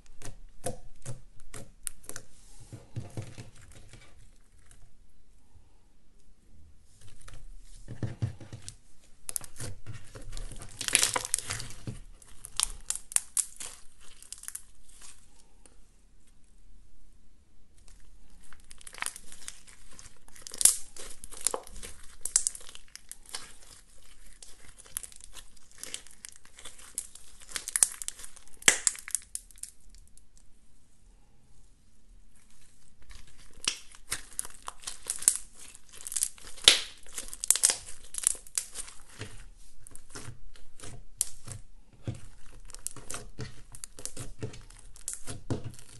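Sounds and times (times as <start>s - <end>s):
slime crackling and popping: 9.1s - 15.3s, 17.8s - 30.4s, 32.3s - 45.9s.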